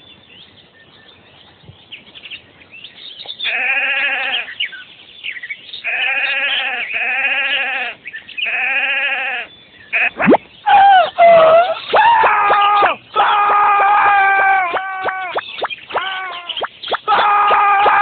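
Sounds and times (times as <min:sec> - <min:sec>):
faint bird chirps: 0:00.0 - 0:17.5
sheep bleating: 0:03.4 - 0:04.6, 0:05.8 - 0:10.2.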